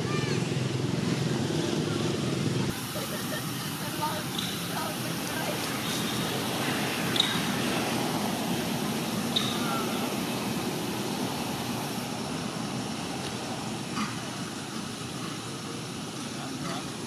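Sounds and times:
rushing outdoor background noise: 0:00.0 - 0:17.0.

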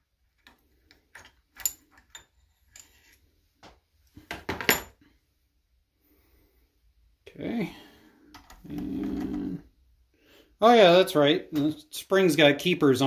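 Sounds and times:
small metal parts clinking: 0:01.1 - 0:03.1.

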